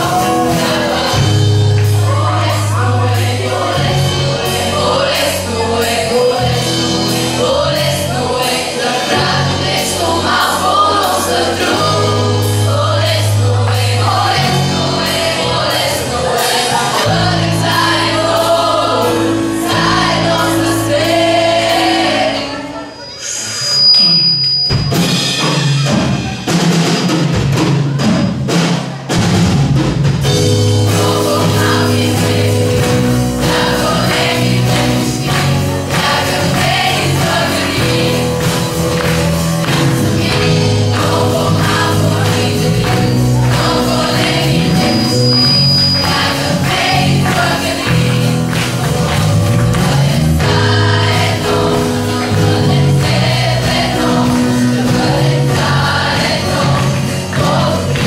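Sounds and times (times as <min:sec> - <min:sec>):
amplified music with drums: 0:00.0 - 0:22.3, 0:24.5 - 0:58.0
children singing together: 0:00.0 - 0:23.4, 0:30.6 - 0:58.0.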